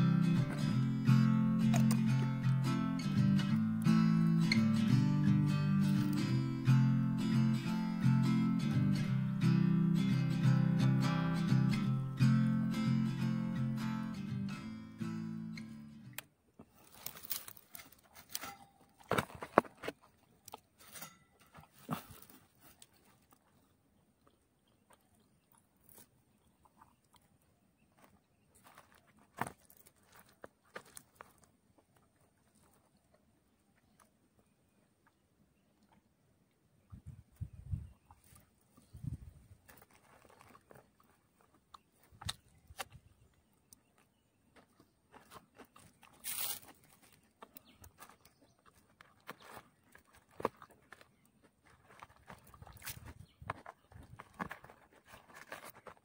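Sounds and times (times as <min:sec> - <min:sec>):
faint eating sounds: 0:19.8 - 0:56.0.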